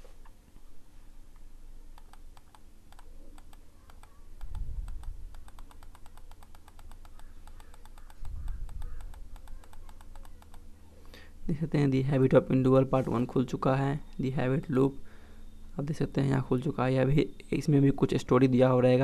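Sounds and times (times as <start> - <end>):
rapid computer clicking: 2.0 - 10.7.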